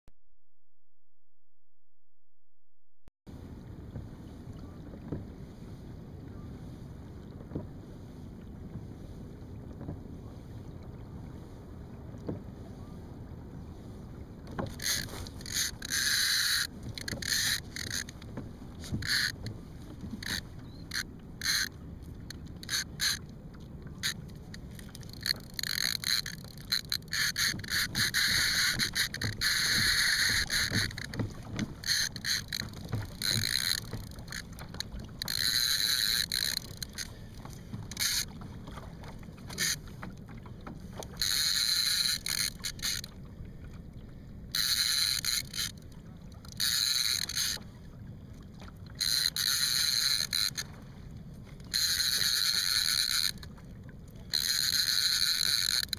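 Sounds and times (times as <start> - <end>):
reel clicks: 14.4 - 43.8, 44.4 - 47.7, 48.6 - 50.8, 51.5 - 55.9
fishing reel whirring: 14.6 - 18.2, 18.9 - 19.4, 20.2 - 21.7, 22.6 - 23.2, 24.8 - 37.2, 37.9 - 38.3, 41.2 - 43.1, 44.5 - 45.8, 46.5 - 47.6, 49.0 - 50.7, 51.7 - 53.5, 54.3 - 55.9.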